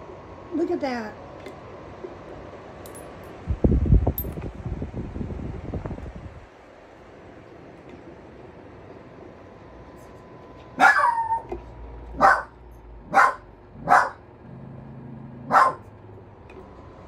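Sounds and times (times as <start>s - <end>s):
fan humming: 0.0s - 17.0s
small dog barking: 10.8s - 11.5s, 12.1s - 14.3s, 15.4s - 15.9s.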